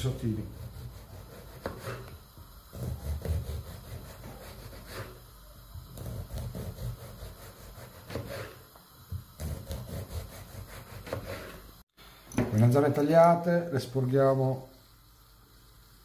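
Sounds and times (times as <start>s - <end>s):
knife slicing vegetable: 0.4s - 5.2s, 5.8s - 8.6s, 9.3s - 11.6s.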